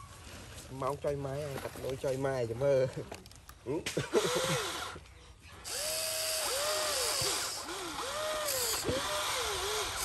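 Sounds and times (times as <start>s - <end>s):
electric motors whining: 5.6s - 10.0s.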